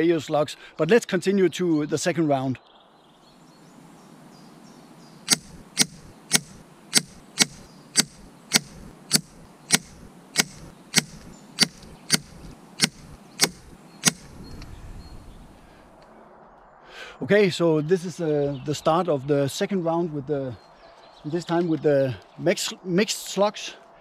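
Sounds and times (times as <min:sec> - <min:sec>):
air rifle shots: 0:05.3 - 0:14.4.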